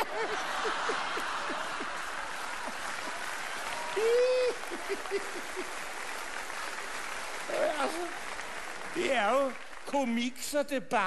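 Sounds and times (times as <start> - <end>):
drawn-out laugh: 0.0 - 2.2, 4.4 - 5.8
audience laughing: 0.0 - 3.4, 4.0 - 6.2
audience applauding: 0.0 - 10.6.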